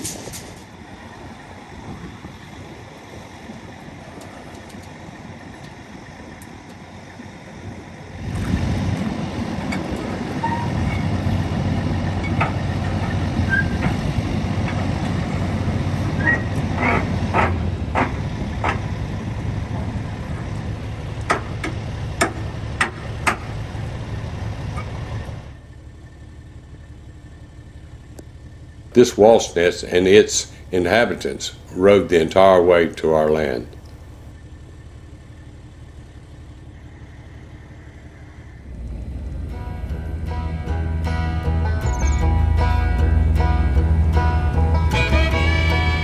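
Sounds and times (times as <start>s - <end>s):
vehicle engine and road rumble: 0.0s - 46.0s.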